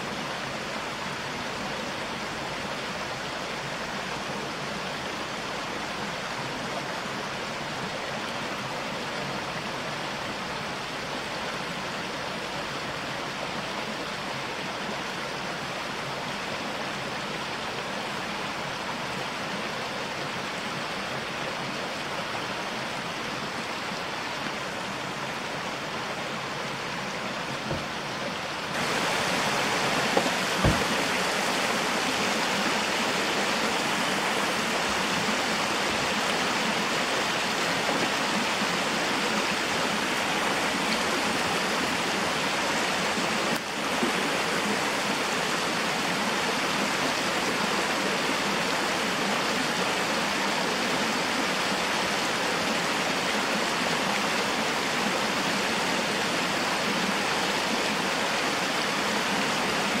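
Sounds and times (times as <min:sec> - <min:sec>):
stream rushing over rocks: 0:00.0 - 1:00.0
short thump: 0:27.6 - 0:27.9, 0:30.1 - 0:31.1.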